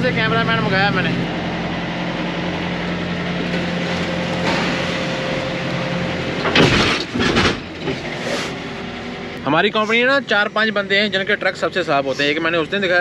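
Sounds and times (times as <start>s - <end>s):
diesel truck idling: 0.0s - 13.0s
loud clatter and rustle: 3.4s - 5.4s, 6.2s - 8.6s.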